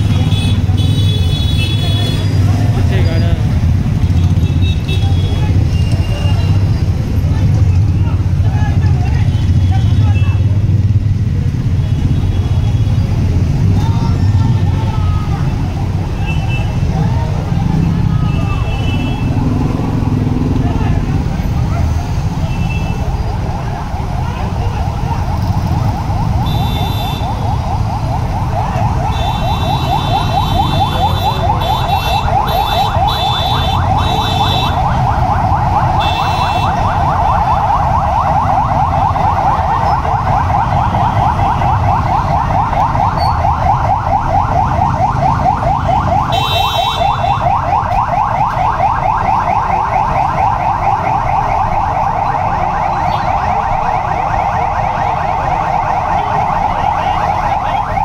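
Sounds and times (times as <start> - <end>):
street noise rumble: 0.0 - 58.0
siren warbling: 23.0 - 58.0
short shrill siren tones: 43.1 - 43.7.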